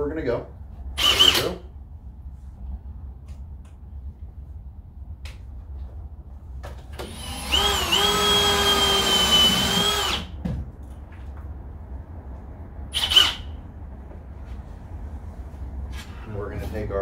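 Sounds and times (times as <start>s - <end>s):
cordless drill whining: 1.0s - 1.6s, 7.0s - 10.3s, 13.0s - 13.5s.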